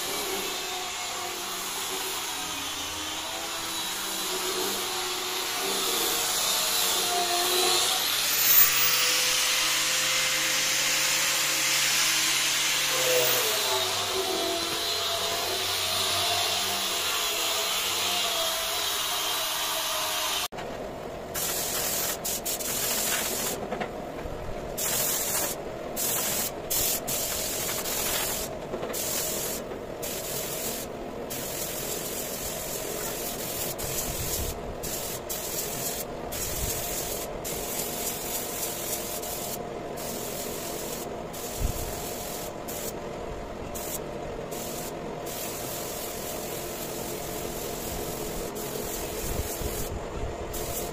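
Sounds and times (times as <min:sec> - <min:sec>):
spray gun hissing: 0:21.4 - 0:23.6, 0:24.8 - 0:43.0, 0:43.8 - 0:49.9, 0:50.5 - 0:50.9.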